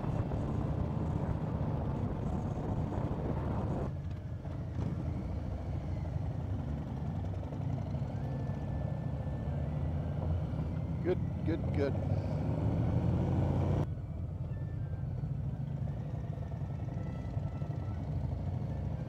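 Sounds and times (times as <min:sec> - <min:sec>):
motorcycle engine rumble: 0:00.0 - 0:12.4.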